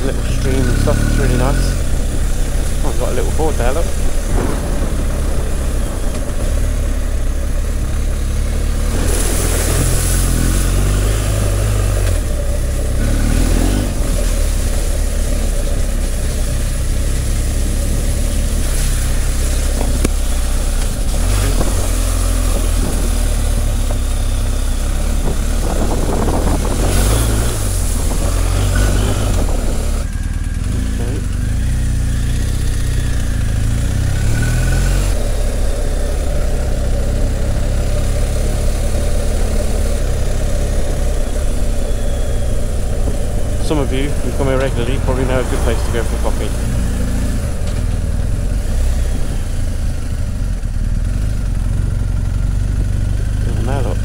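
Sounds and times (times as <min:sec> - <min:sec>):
wind rushing over microphone: 0:00.0 - 0:31.5, 0:40.0 - 0:51.2
motorcycle engine rumble: 0:00.0 - 0:54.0.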